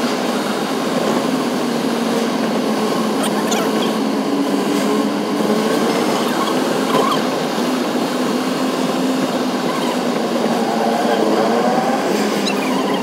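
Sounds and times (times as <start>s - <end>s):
road noise in tunnel: 0.0s - 13.0s.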